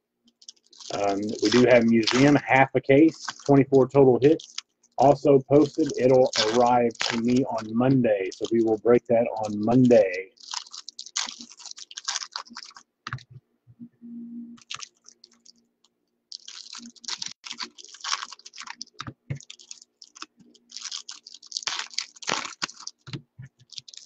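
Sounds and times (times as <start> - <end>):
foil wrappers crinkling: 0.4 - 13.2, 14.6 - 15.6, 16.3 - 24.0
cards being handled: 0.5 - 2.5, 3.1 - 10.2.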